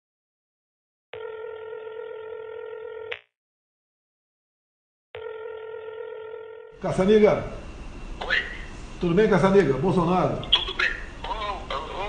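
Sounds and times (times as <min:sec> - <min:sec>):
phone ringback tone: 0:01.2 - 0:03.1, 0:05.2 - 0:06.8.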